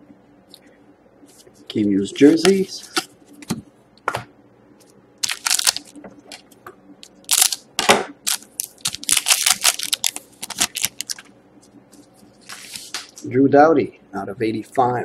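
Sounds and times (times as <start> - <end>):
foil pack crinkling: 5.2 - 6.0, 7.2 - 7.6, 8.2 - 11.3.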